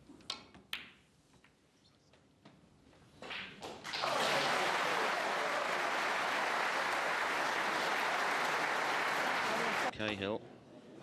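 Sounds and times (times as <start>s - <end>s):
audience applauding: 3.9s - 9.9s.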